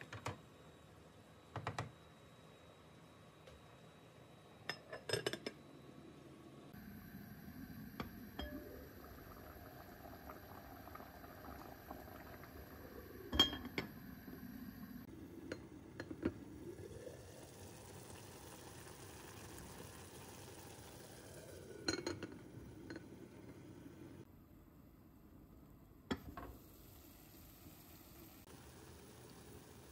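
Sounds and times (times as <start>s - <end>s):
faint bubbling in a pot: 6.7s - 24.3s, 26.1s - 29.9s
glass lid clinks: 13.3s - 13.9s.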